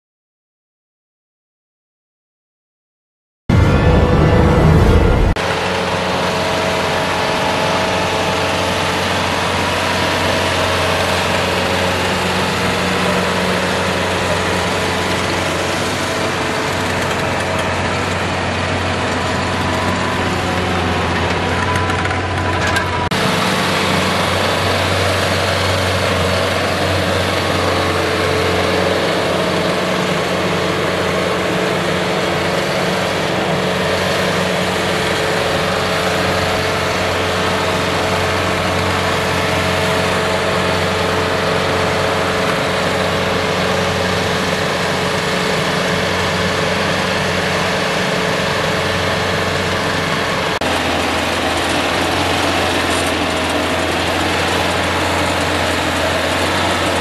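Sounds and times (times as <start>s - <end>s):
steady whine: 3.5s - 57.0s
tractor diesel engine under load: 3.5s - 57.0s
rotary tiller in soil: 5.5s - 57.0s.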